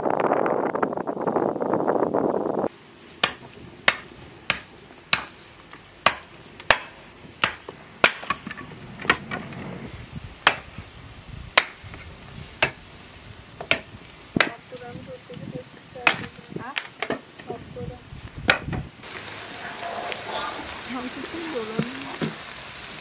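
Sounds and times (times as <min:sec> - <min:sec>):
wind buffeting microphone: 0:00.0 - 0:02.7, 0:08.6 - 0:16.8, 0:17.4 - 0:22.2
blade chopping wood: 0:03.2 - 0:09.3, 0:10.4 - 0:10.8, 0:11.5 - 0:12.0, 0:12.6 - 0:12.8, 0:13.6 - 0:14.6, 0:16.0 - 0:17.2.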